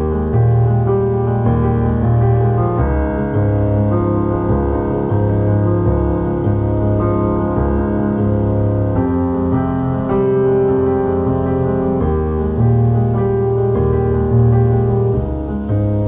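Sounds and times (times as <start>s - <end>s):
slow piano chords: 0.0s - 16.0s.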